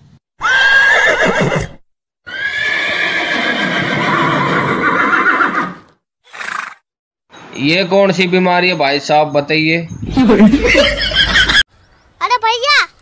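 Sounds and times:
horse whinnies: 0.4 - 6.8.

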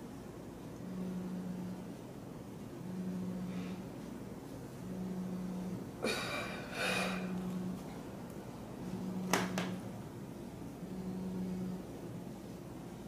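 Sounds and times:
low hum: 0.0 - 13.0
woman breathing hard: 6.0 - 7.3.

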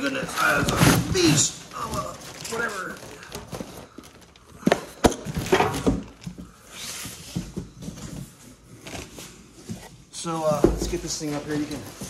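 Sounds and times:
packaging rustling and crinkling: 0.0 - 12.0
cardboard boxes set down: 3.3 - 12.0.

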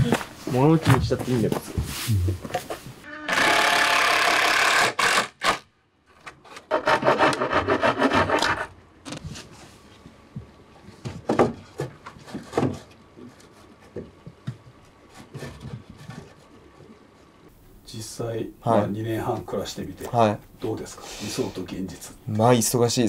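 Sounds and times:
hand saw rasping through wood: 6.7 - 8.7.

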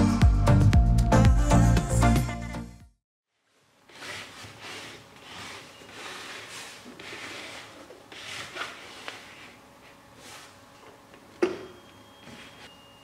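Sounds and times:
wood rubbing and scraping on table: 3.9 - 9.6.

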